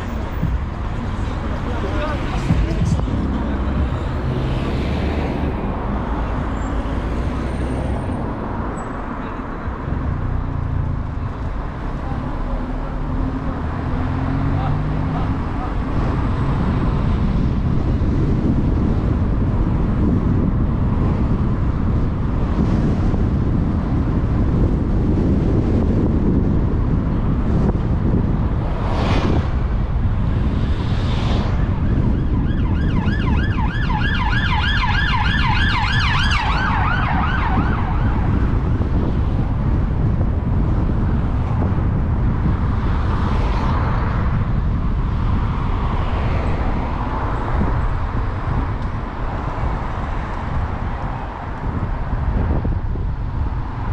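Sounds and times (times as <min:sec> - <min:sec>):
road and wind rumble: 0:00.0 - 0:53.9
warbling emergency siren: 0:31.7 - 0:38.4.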